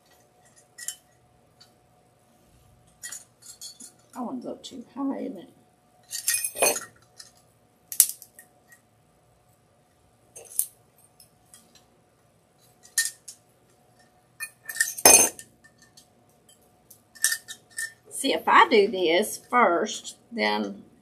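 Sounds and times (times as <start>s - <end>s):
small tin bells clinking: 14.4s - 16.6s.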